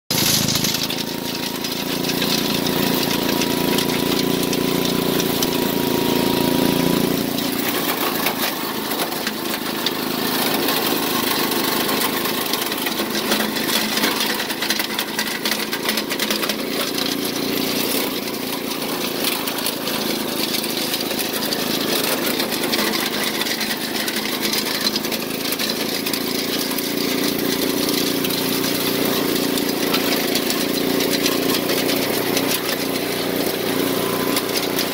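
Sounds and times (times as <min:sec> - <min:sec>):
chipper engine running: 0:00.1 - 0:34.9.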